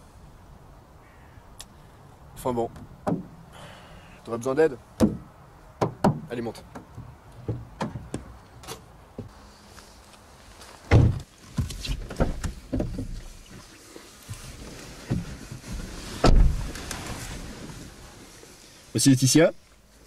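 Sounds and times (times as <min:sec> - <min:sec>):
car doors shutting: 0:16.2 - 0:16.8.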